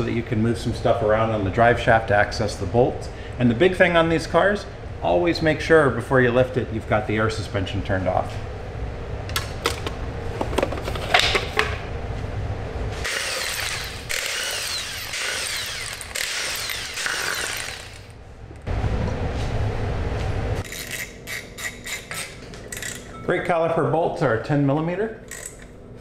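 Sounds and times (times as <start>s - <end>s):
power tool whirring: 13.0s - 18.2s.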